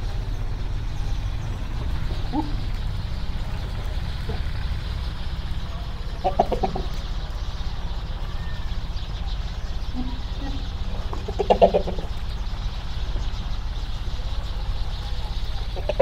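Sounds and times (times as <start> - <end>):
pulsing farm animal calls: 0.0 - 16.0
steady low rumble: 0.0 - 16.0.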